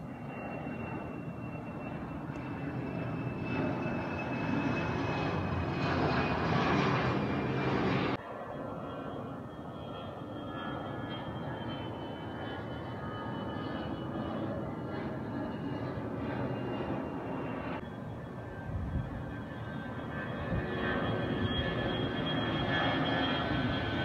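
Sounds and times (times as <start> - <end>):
distant aircraft engines: 0.0 - 24.0
jet airliner flying overhead: 0.0 - 24.0.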